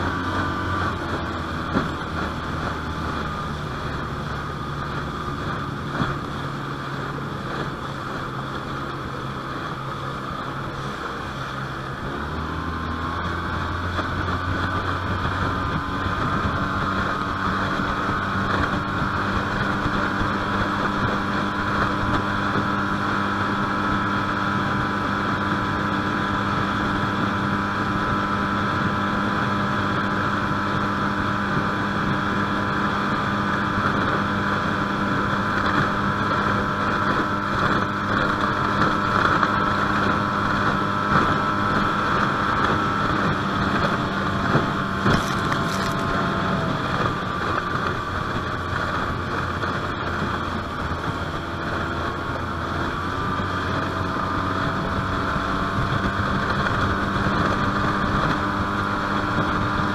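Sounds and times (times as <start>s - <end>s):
water noise: 0.0s - 22.1s, 41.6s - 55.9s
outboard motor running: 0.0s - 59.9s
wind: 0.0s - 59.9s.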